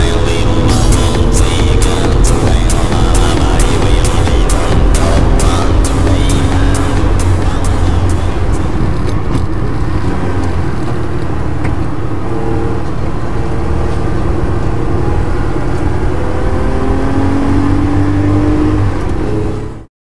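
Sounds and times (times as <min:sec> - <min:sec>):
race car engine under load: 0:00.0 - 0:19.9.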